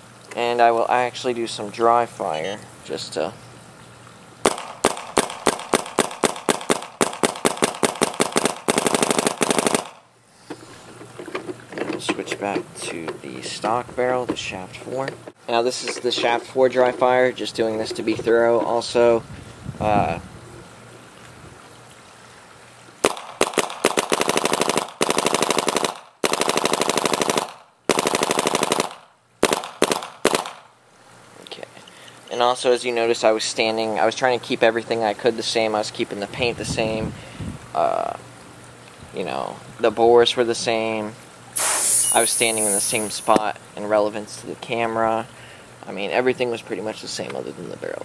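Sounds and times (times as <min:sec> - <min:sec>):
paintball marker shots: 0:04.5 - 0:10.0, 0:23.0 - 0:30.6, 0:41.6 - 0:43.2.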